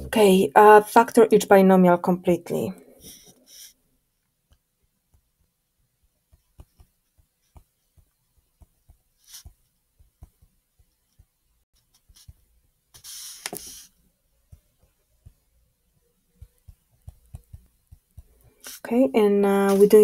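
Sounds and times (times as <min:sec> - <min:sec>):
stylus tapping on touchscreen: 0:06.3 - 0:11.4, 0:16.4 - 0:18.8
short hiss: 0:13.0 - 0:13.9.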